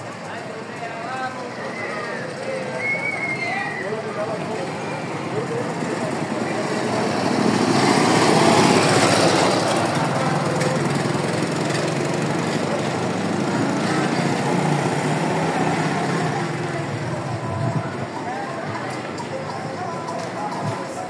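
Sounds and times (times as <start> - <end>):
small motorcycle engine running: 4.3 - 17.9.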